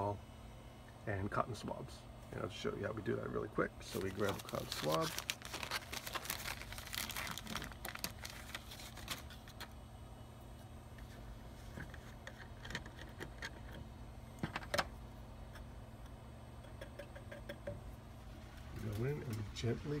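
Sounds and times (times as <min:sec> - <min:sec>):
plastic bag crinkling: 0:03.8 - 0:09.8.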